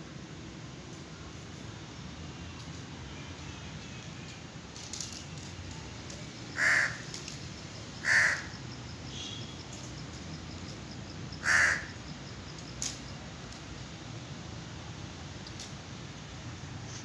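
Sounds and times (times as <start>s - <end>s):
crow cawing: 6.6s - 7.1s, 8.0s - 8.6s, 11.4s - 12.0s.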